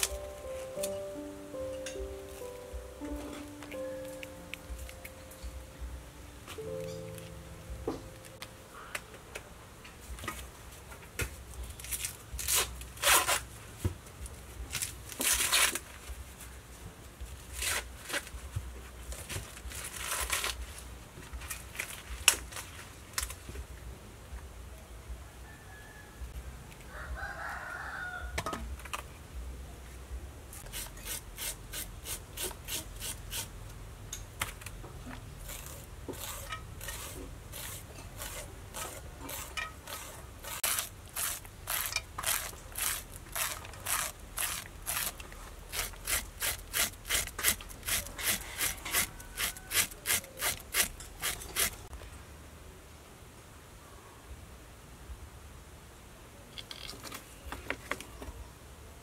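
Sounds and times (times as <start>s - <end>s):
knife scraping corn cob: 11.8s - 13.5s, 17.6s - 18.3s, 30.6s - 33.5s, 35.4s - 51.9s
rooster crowing: 25.2s - 28.5s, 48.1s - 50.4s.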